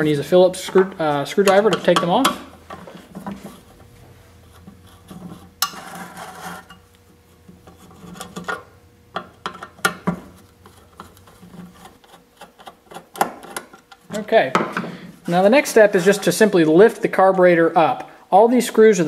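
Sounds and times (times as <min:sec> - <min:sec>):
screwdriver scraping and clicking: 0:07.6 - 0:14.1.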